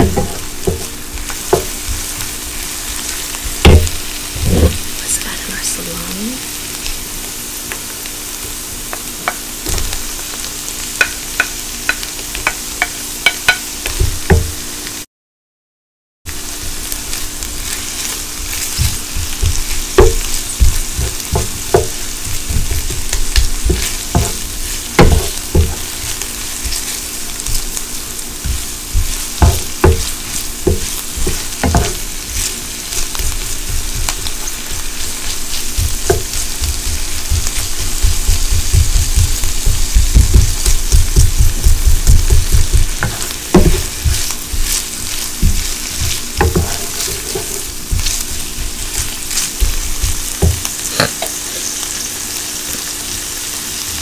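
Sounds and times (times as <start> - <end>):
food sizzling in frying pan: 0.0 - 15.0, 16.3 - 54.0
wooden spoon scraping pan: 41.8 - 51.8.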